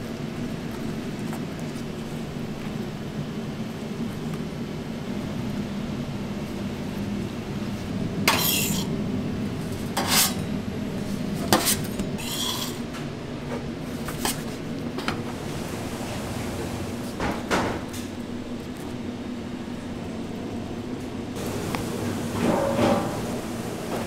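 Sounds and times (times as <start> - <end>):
low kitchen hum: 0.0 - 24.0
metal spatula scraping pan: 8.3 - 9.0, 9.9 - 10.4, 11.5 - 12.9.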